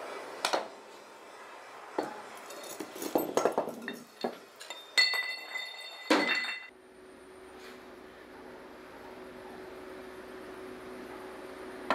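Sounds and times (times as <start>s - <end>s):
metal parts clinking on concrete: 2.0s - 6.7s
ringing metallic tone: 4.6s - 6.7s.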